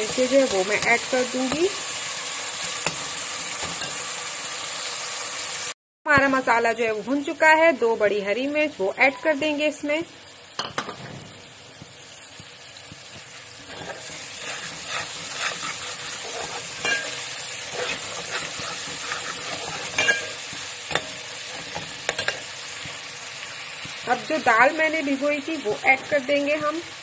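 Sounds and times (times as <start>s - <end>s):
sauce sizzling in a pot: 0.0s - 27.0s
metal ladle scraping a pot: 13.6s - 22.5s.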